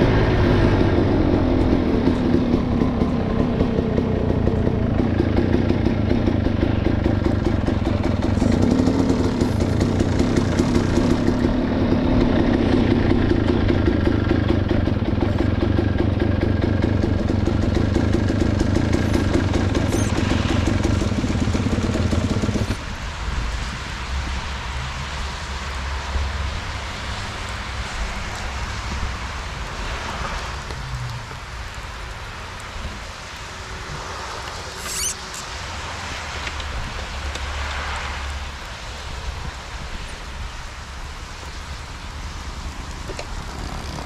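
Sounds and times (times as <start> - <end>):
motorcycle engine running: 0.0 - 22.8.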